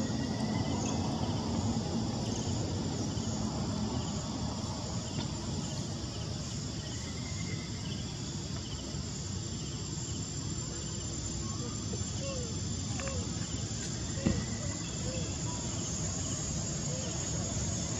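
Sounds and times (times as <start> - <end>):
insects buzzing: 0.0 - 17.9.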